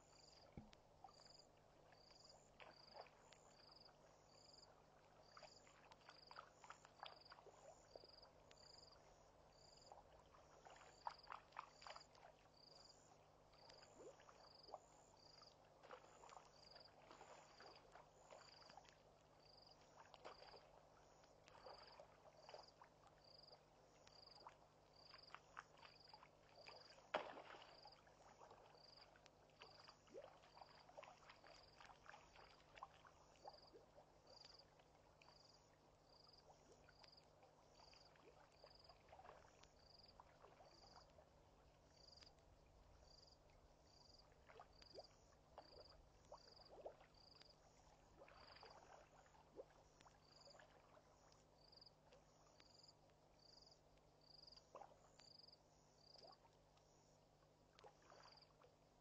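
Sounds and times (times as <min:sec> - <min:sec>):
insect chirping: 0:00.0 - 0:06.3, 0:07.9 - 0:10.0, 0:12.6 - 0:15.5, 0:19.4 - 0:19.8, 0:20.4 - 0:28.0, 0:28.8 - 0:29.9, 0:34.3 - 0:39.0, 0:41.9 - 0:42.3, 0:43.0 - 0:49.0, 0:49.9 - 0:50.6, 0:51.2 - 0:57.3, 0:58.0 - 0:58.5.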